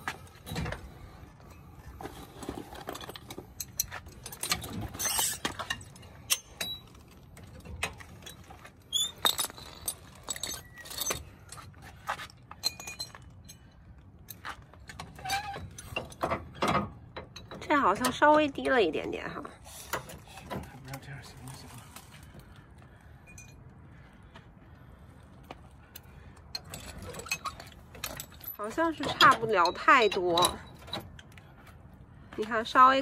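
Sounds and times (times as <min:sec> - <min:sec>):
metal chains and hooks jangling: 0:01.5 - 0:16.6, 0:26.5 - 0:31.4.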